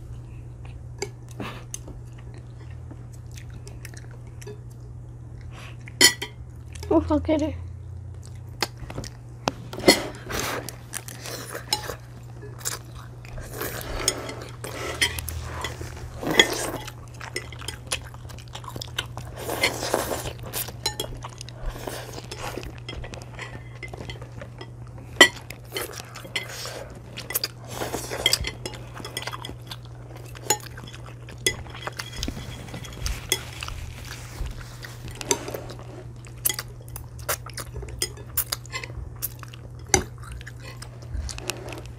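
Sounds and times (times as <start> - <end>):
steady low hum: 0.0 - 41.9
person chewing: 0.6 - 6.9, 8.0 - 41.9
chopsticks clinking on ceramic: 11.3 - 13.0, 19.5 - 33.7, 36.4 - 40.9.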